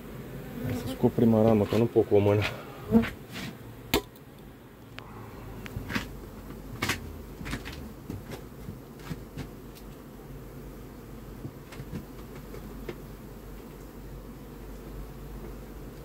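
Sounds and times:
honeybees humming: 0.0s - 16.0s
hive tool clicking and scraping: 5.6s - 10.1s, 11.4s - 13.9s.

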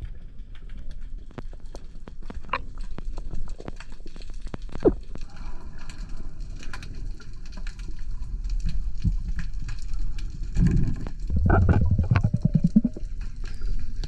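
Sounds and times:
faint crackling clicks: 0.0s - 14.0s
gurgling rush of water and bubbles: 1.5s - 14.0s
low underwater rumble: 7.1s - 14.0s.

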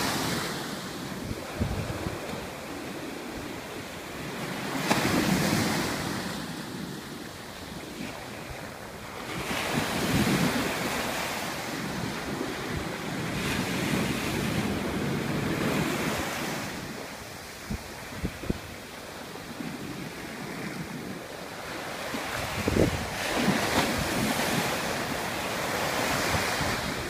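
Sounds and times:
ocean waves crashing on beach: 0.0s - 27.0s.

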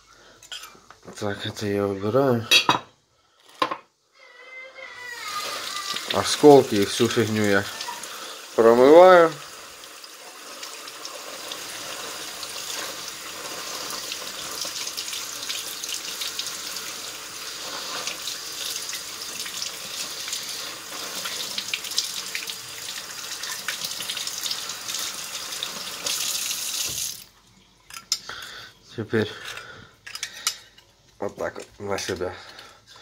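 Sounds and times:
tap water splashing in sink: 18.0s - 27.3s.

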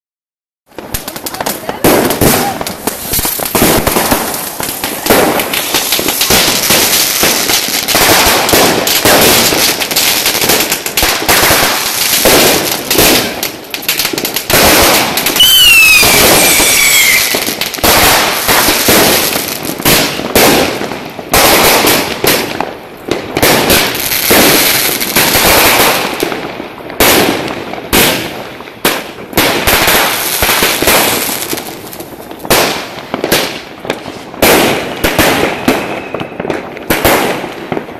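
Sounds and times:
fireworks bangs and crackling: 0.7s - 37.9s
falling firework whistle: 15.3s - 18.2s, 35.2s - 36.6s.

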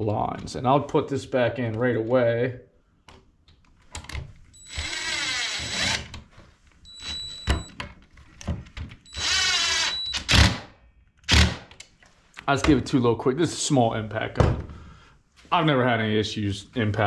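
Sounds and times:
impact driver whirring: 4.6s - 6.2s, 9.1s - 10.7s.

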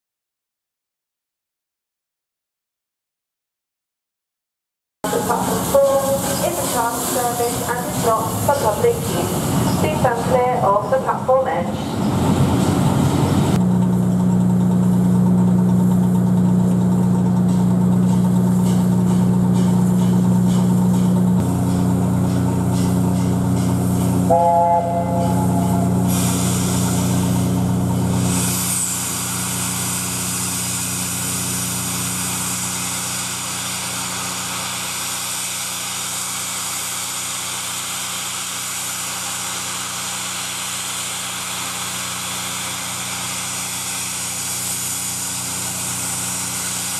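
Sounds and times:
steam hissing: 5.1s - 13.6s, 21.4s - 46.9s.

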